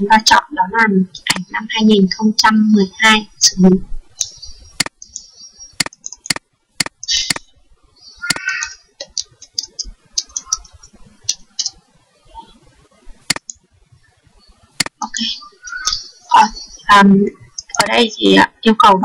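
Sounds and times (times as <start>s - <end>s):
mouse clicks: 4.2s - 7.5s, 8.3s - 11.8s, 13.3s - 13.6s.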